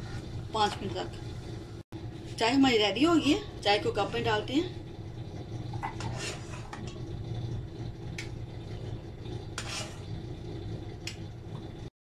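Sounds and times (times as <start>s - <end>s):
low hum: 0.0s - 11.9s
ladle scraping saucepan: 5.7s - 7.1s, 8.8s - 10.4s.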